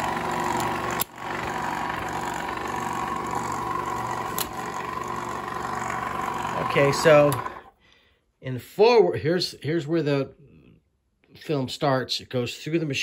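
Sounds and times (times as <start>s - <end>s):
film projector humming and whining: 0.0s - 7.7s.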